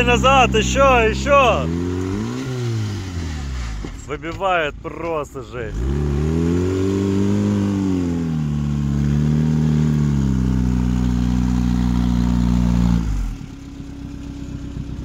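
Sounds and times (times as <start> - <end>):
car engine revving hard: 0.0 - 4.0, 5.6 - 13.5.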